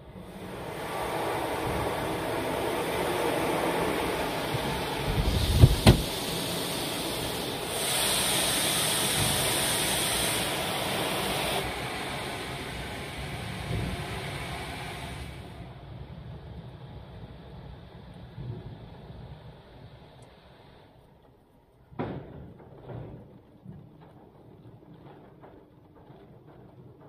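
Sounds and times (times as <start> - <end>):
water spraying over car: 0.3 - 15.5
high hiss: 0.4 - 15.6
sharp thumps: 5.6 - 6.1.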